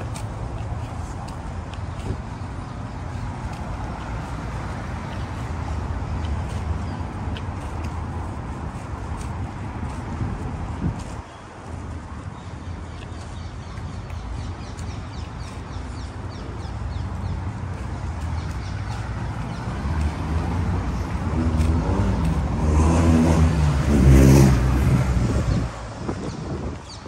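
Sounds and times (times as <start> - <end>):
vehicle engine passing close: 19.5 - 25.7.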